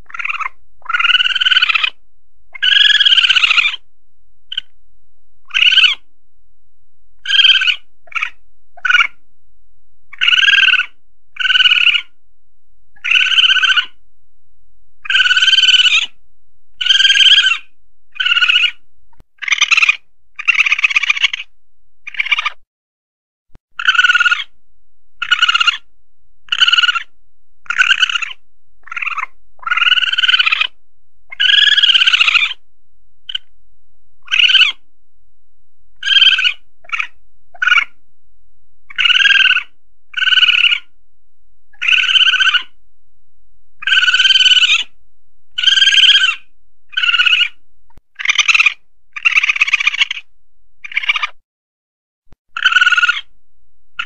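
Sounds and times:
civet short high calls: 0.0 - 3.9, 4.5 - 4.7, 5.4 - 6.1, 7.2 - 9.2, 10.1 - 12.2, 13.0 - 14.0, 15.0 - 16.2, 16.8 - 18.8, 19.4 - 21.5, 22.1 - 22.6, 23.8 - 24.6, 25.2 - 32.6, 33.3 - 33.5, 34.2 - 34.8, 36.0 - 38.0, 38.9 - 41.0, 41.7 - 42.8, 43.8 - 51.4, 52.5 - 53.3.

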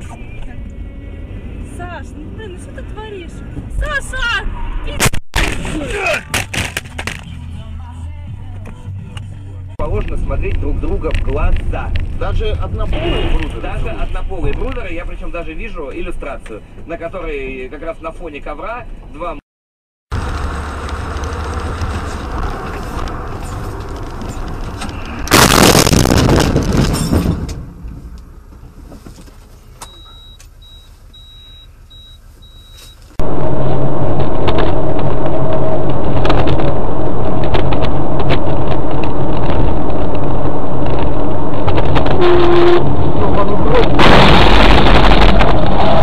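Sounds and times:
car road and engine noise: 0.0 - 19.4, 20.1 - 46.0
loud explosion blast: 25.3 - 27.5, 43.8 - 46.0
high beeps: 29.8 - 33.0.

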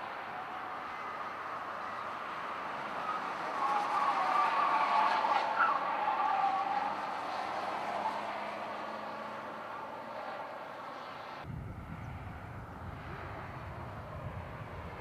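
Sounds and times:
race cars tyres and motors: 0.0 - 15.0
wind on microphone: 11.4 - 15.0.

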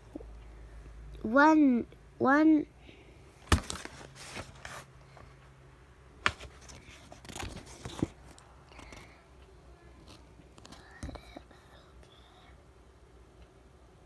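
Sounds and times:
book handling rustle: 3.4 - 5.4, 6.2 - 9.0.

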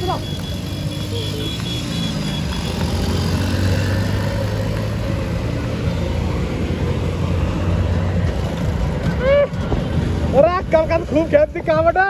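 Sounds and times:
road and wind noise: 0.0 - 12.0.

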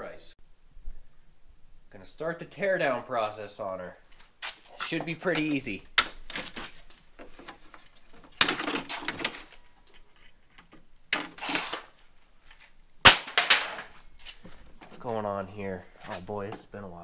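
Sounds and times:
plastic scraping and rattling: 6.2 - 12.0.

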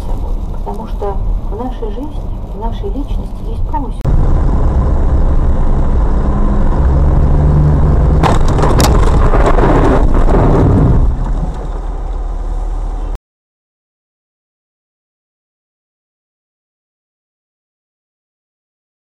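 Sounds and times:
car road and engine rumble: 0.0 - 13.2
car sideswipe crack and crunching: 8.2 - 10.0.

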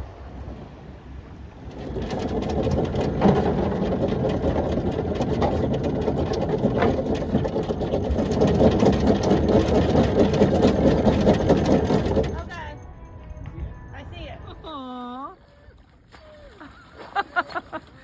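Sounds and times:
anchor windlass droning: 0.0 - 18.0
rapid clicking of chain: 1.7 - 12.7.

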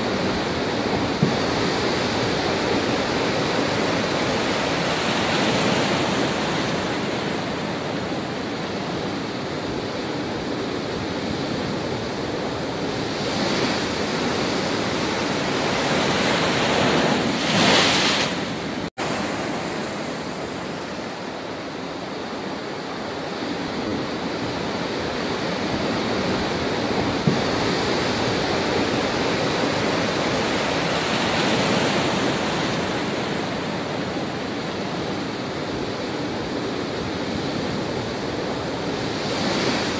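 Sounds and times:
surf breaking against rocks: 13.3 - 20.8.

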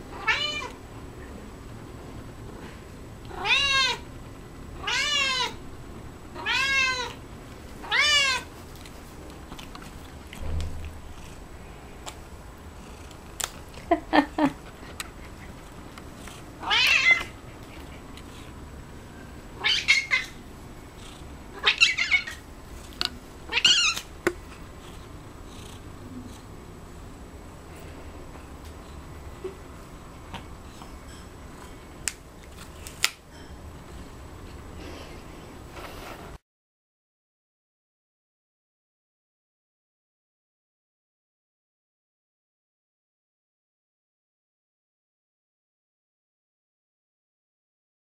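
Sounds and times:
cat meowing: 0.1 - 0.8, 3.3 - 4.0, 4.8 - 5.6, 6.4 - 7.2, 7.8 - 8.5.

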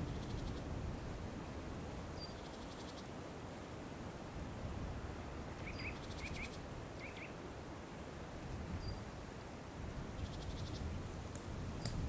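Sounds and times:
songbirds calling: 2.2 - 3.2, 5.6 - 7.4, 10.2 - 10.9.

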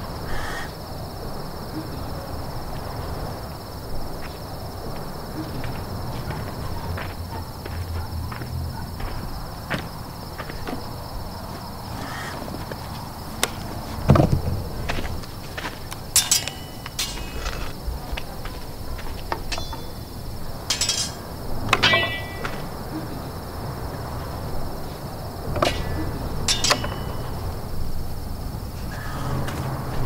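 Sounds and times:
night insects chirring: 0.0 - 30.0
sharp metallic clinks and knocks: 15.9 - 17.8, 19.3 - 22.8, 25.6 - 27.8.

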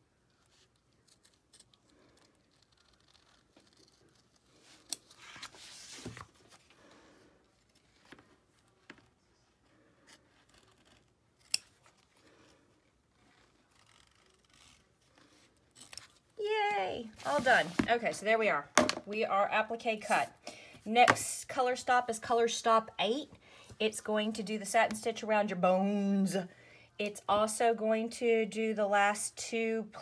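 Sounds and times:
scissors snipping fabric: 10.1 - 11.7.

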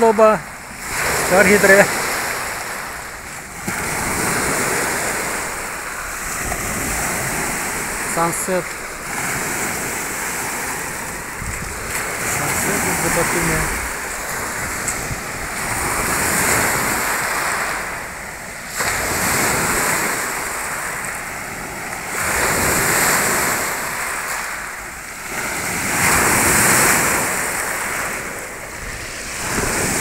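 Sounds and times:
waves breaking on pebble beach: 0.0 - 30.0.

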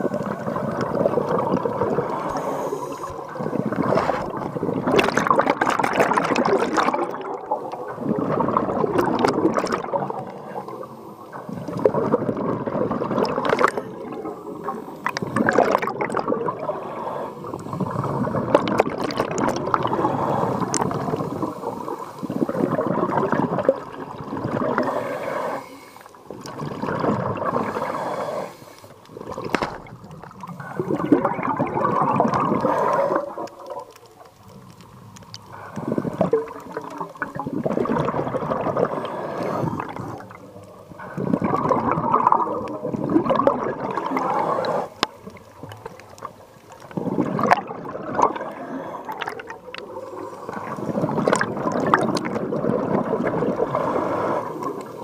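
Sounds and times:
bubbles gurgling underwater: 0.0 - 25.0, 26.2 - 28.1, 29.1 - 55.0
diver breathing through regulator: 1.9 - 4.6, 16.6 - 18.4, 19.8 - 22.8, 24.6 - 26.3, 27.4 - 31.4, 32.4 - 33.6, 34.6 - 36.8, 38.1 - 41.7, 43.9 - 45.3, 48.2 - 51.2, 53.5 - 55.0.

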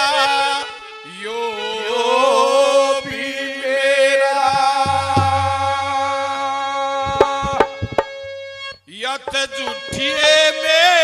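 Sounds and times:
hand drum strokes: 4.5 - 10.0
harmonium drone: 4.6 - 10.9.

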